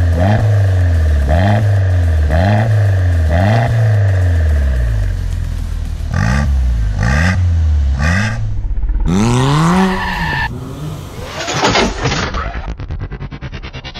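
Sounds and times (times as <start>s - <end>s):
car engine revving: 0.0s - 13.9s
car accelerating away: 2.3s - 11.8s.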